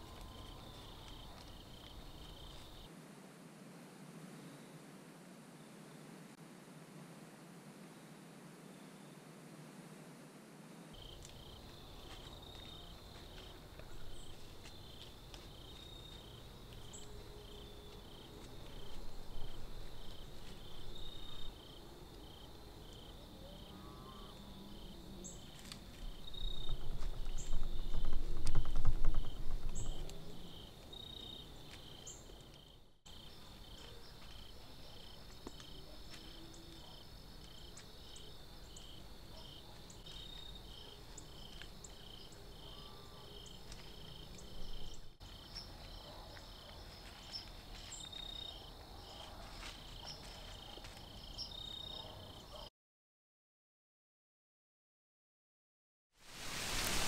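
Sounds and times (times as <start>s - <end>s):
crickets chirping: 0.0s - 2.9s, 10.9s - 52.7s, 56.3s - 57.0s.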